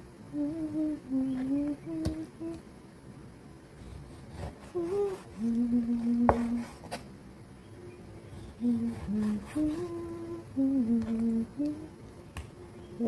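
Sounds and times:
person humming: 0:00.3 - 0:02.6, 0:04.4 - 0:06.8, 0:08.6 - 0:12.0.

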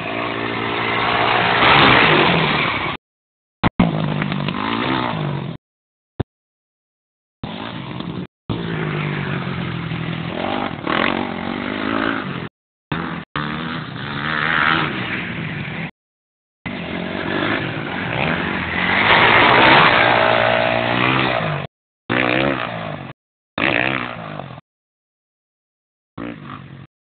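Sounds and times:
dirt bike engine revving: 0:00.0 - 0:03.0, 0:03.8 - 0:05.6, 0:07.4 - 0:15.9, 0:16.7 - 0:24.6.

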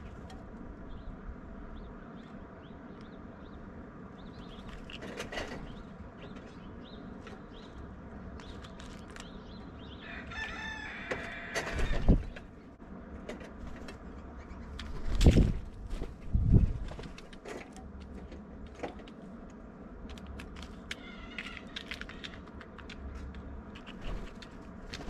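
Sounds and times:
small birds chirping: 0:00.4 - 0:12.8, 0:20.4 - 0:25.0
rooster crowing: 0:10.0 - 0:12.2.

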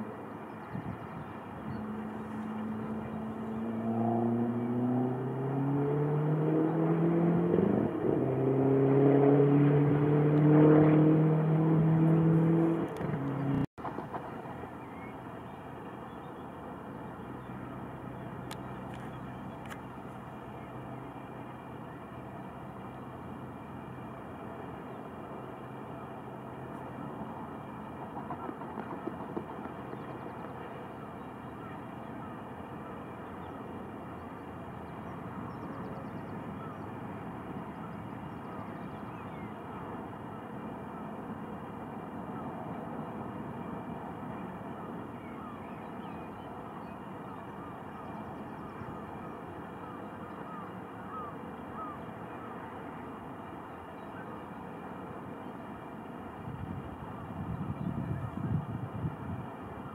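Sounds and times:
outdoor background rumble: 0:00.0 - 0:59.9
vehicle engine accelerating: 0:01.6 - 0:14.4.

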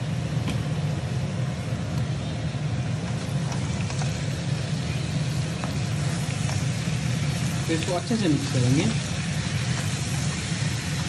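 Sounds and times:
food frying: 0:00.0 - 0:11.0.

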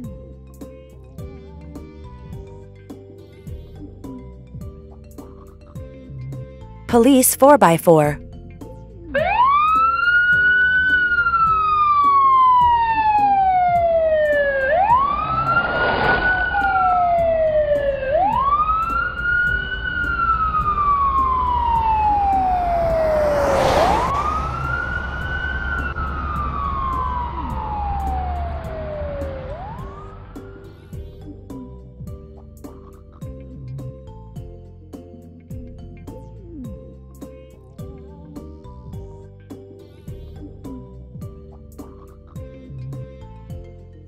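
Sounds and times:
police siren wailing: 0:09.2 - 0:30.6.

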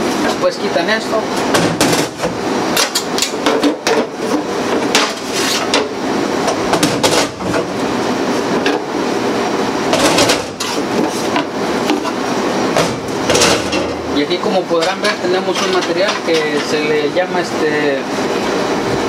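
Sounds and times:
steady hum: 0:00.0 - 0:19.0
metal grates clanking: 0:01.4 - 0:04.1, 0:09.9 - 0:17.0.

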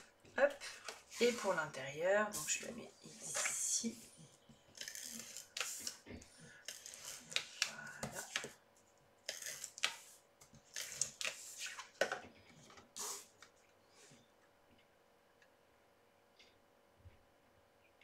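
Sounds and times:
cardstock rustling and scraping: 0:00.8 - 0:01.7.

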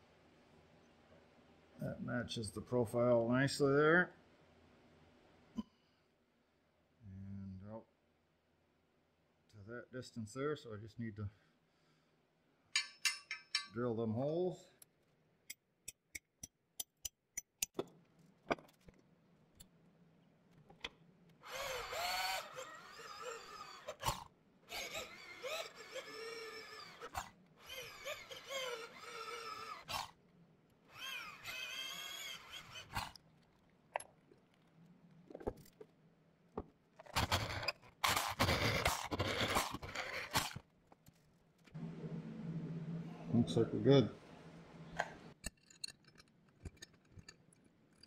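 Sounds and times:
electric drill boring through steel: 0:21.4 - 0:30.2, 0:30.9 - 0:33.2, 0:37.2 - 0:40.6.

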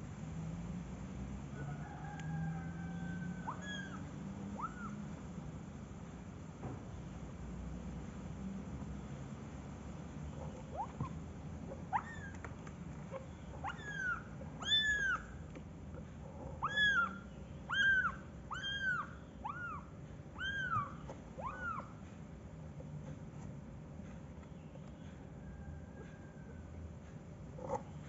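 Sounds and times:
kitten mewing: 0:03.5 - 0:05.0, 0:16.3 - 0:22.0.

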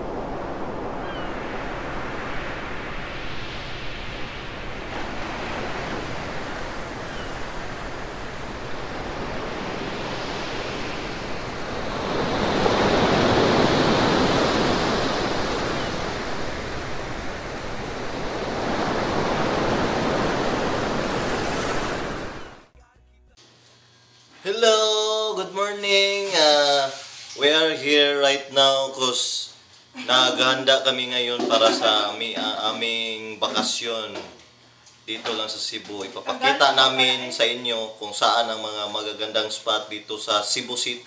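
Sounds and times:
ocean waves washing on shore: 0:00.0 - 0:22.6.

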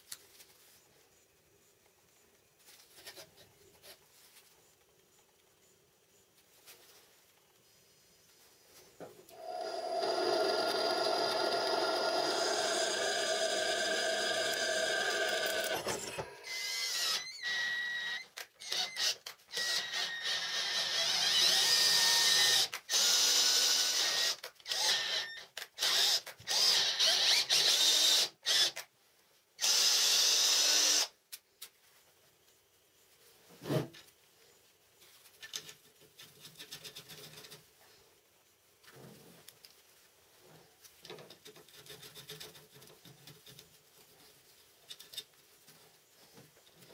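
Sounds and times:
electric drill boring steel: 0:09.3 - 0:28.8, 0:29.6 - 0:31.1
metal parts rattling: 0:15.3 - 0:16.3.

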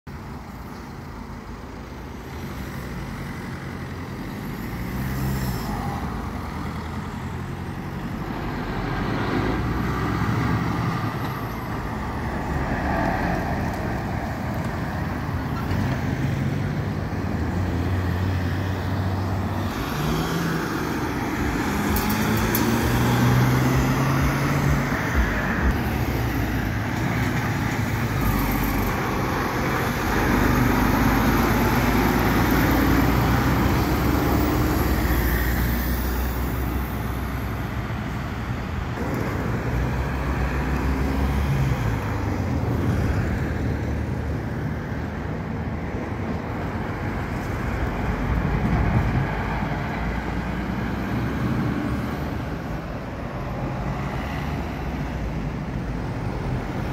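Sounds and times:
cars and trucks passing: 0:00.1 - 0:56.9
truck diesel engine turning: 0:00.2 - 0:43.7.

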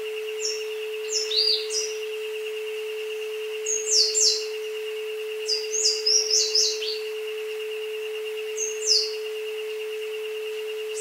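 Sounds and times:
rapidly pulsing high tone: 0:00.0 - 0:11.0
steady pure tone: 0:00.0 - 0:11.0
high falling bird chirps: 0:00.4 - 0:02.0.

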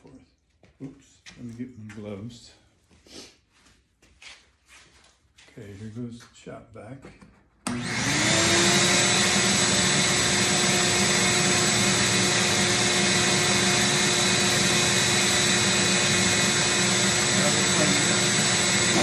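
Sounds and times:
shop vac motor running: 0:07.6 - 0:19.0.

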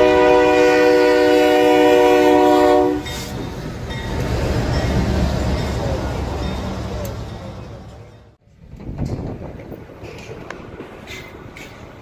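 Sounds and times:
locomotive air horn chord: 0:00.0 - 0:03.3
train rumble: 0:00.0 - 0:12.0.

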